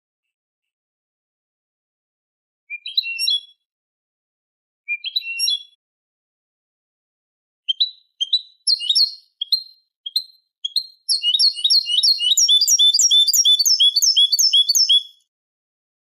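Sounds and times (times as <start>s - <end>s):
goldfinch song: 2.7s - 3.6s, 4.9s - 5.8s, 7.7s - 15.3s.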